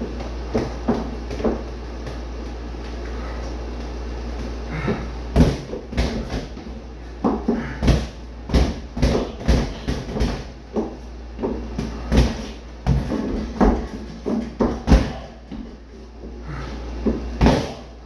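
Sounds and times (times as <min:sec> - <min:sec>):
gloves thudding on punching bag: 0:04.9 - 0:06.6, 0:07.2 - 0:15.6, 0:17.4 - 0:17.9.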